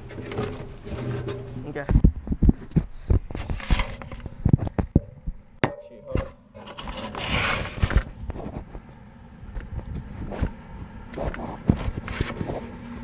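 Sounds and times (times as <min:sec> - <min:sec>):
knocks and clatter: 0:00.0 - 0:07.2.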